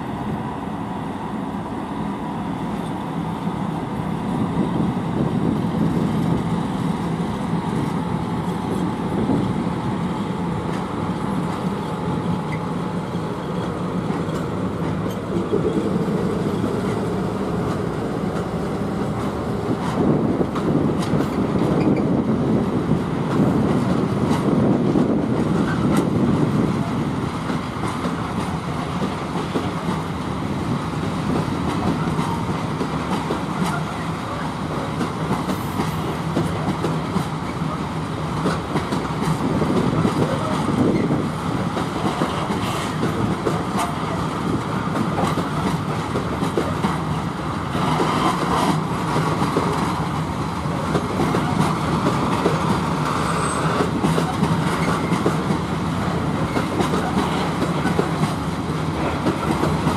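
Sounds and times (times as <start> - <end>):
train wheels rumbling on rails: 0.0 - 59.9
wheels clicking over rail joints: 38.4 - 59.9.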